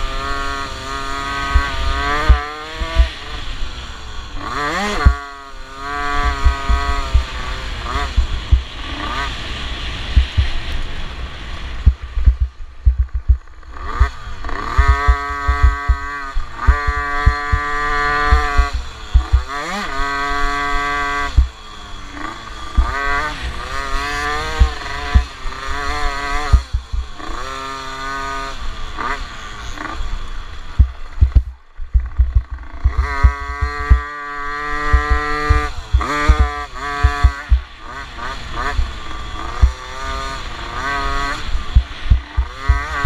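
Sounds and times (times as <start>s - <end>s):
motocross bike engine revving: 0.0s - 43.0s
heavy low thumps: 8.2s - 8.7s, 10.2s - 10.6s, 11.8s - 13.5s, 14.8s - 16.1s, 18.3s - 19.4s, 26.5s - 27.1s, 30.8s - 34.1s, 34.9s - 37.6s, 41.7s - 43.0s.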